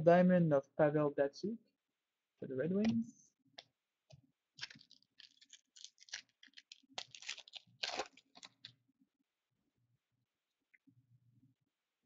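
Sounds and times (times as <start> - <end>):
cards rustling and shuffling: 4.6 - 8.8.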